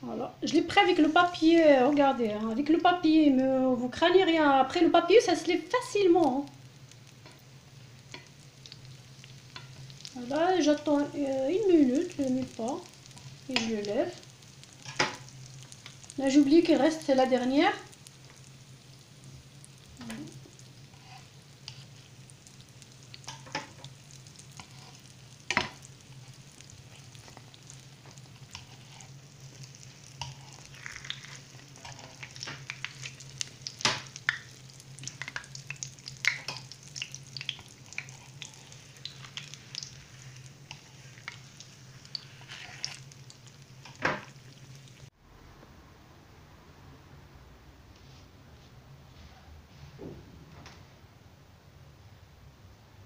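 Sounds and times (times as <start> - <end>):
dough sizzling in hot oil: 0.0 - 45.2
oil pops and crackles: 12.2 - 16.2, 21.6 - 45.1.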